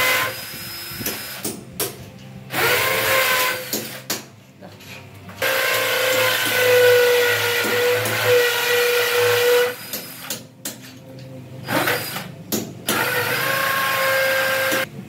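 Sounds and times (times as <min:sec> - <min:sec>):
power drill boring into concrete: 0:12.9 - 0:14.8.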